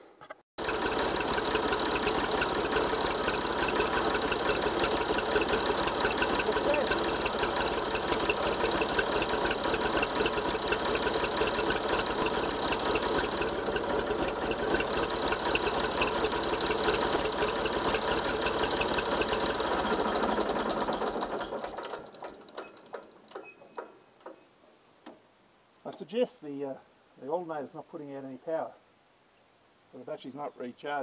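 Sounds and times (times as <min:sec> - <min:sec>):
tractor diesel engine idling: 0:00.6 - 0:23.0.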